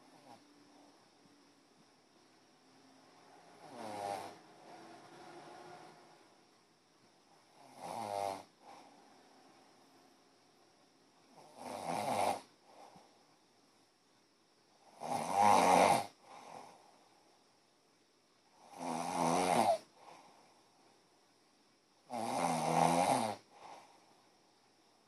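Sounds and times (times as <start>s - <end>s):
person snoring: 3.6s - 5.9s, 7.5s - 8.9s, 11.3s - 13.0s, 14.9s - 16.8s, 18.6s - 20.1s, 22.1s - 24.0s.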